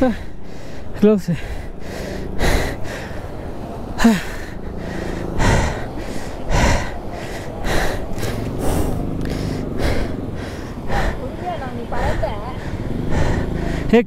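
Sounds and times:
person breathing hard: 0.0s - 14.0s
person grunting: 4.0s - 4.5s.

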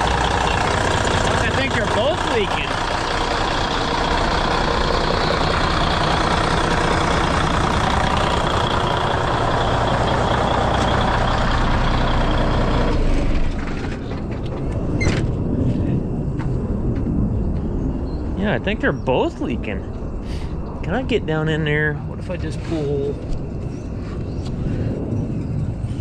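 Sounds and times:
diesel engine running: 0.0s - 17.3s.

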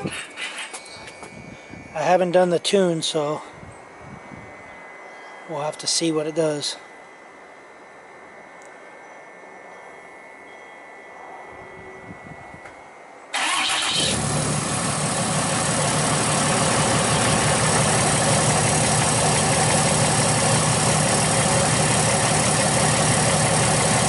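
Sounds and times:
diesel engine starting and idling: 13.3s - 24.0s.

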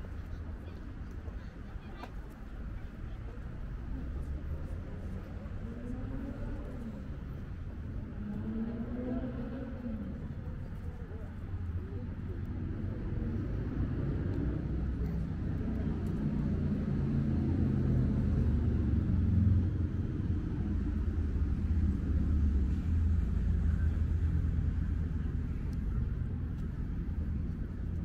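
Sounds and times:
low rumble of road traffic: 0.0s - 28.0s.

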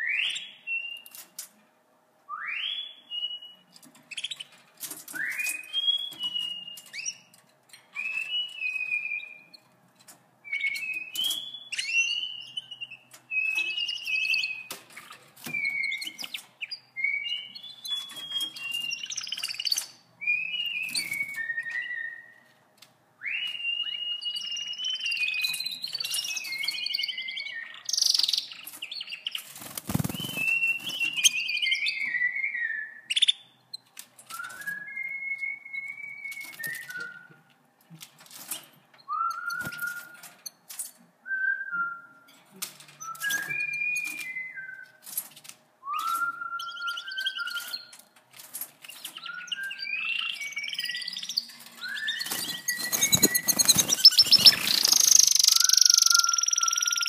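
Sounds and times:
canaries singing: 0.0s - 1.5s, 2.4s - 22.6s, 23.2s - 37.5s, 38.3s - 41.1s, 42.4s - 57.0s
wing flutters: 29.4s - 31.3s, 52.2s - 55.4s
clicks in cage: 42.3s - 46.4s.

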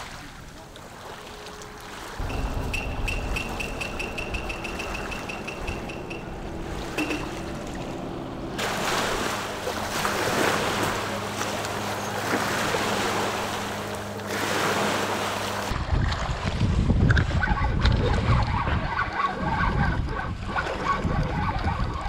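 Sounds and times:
low steady hum: 0.0s - 15.8s
ocean surf washing on shore: 0.0s - 16.9s
wind on the microphone: 15.7s - 22.0s.

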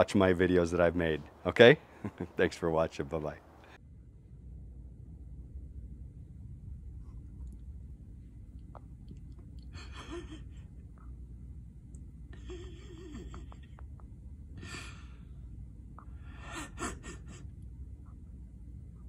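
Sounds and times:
steady low rumble: 0.0s - 19.0s
person wheezing laughter: 9.7s - 10.8s, 12.4s - 13.8s, 16.3s - 17.6s.

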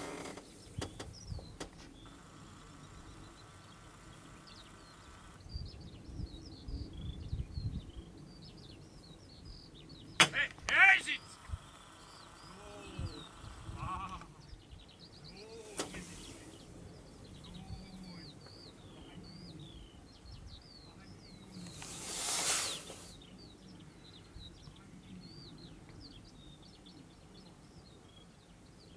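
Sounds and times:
small birds chirping: 0.0s - 28.9s
wind rumble on microphone: 0.5s - 1.8s, 5.3s - 10.2s, 12.7s - 15.2s, 15.9s - 22.2s.

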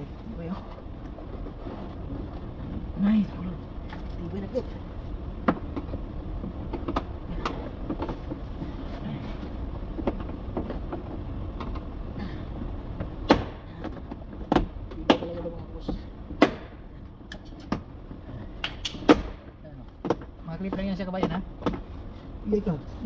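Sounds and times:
low background noise: 0.0s - 23.0s.

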